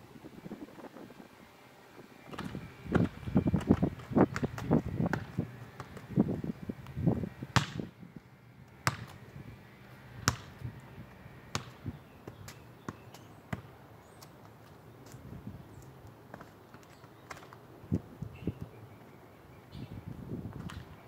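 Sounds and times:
soccer ball thuds: 2.3 - 6.2, 7.5 - 7.9, 8.8 - 9.2, 10.2 - 10.6, 11.5 - 13.7
footsteps on asphalt: 2.3 - 7.0, 12.0 - 18.3.

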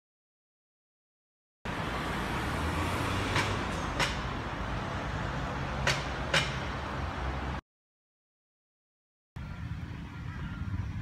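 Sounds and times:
low traffic rumble: 1.7 - 7.6, 9.4 - 11.0.

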